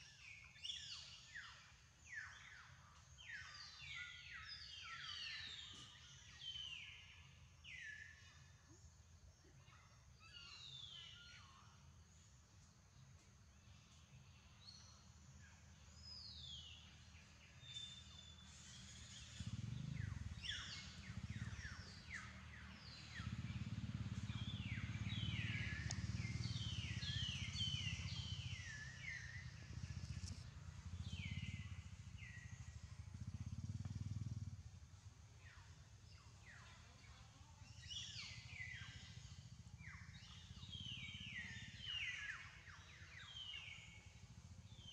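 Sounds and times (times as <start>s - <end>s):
birds chirping: 16.1s - 34.2s, 37.7s - 44.9s.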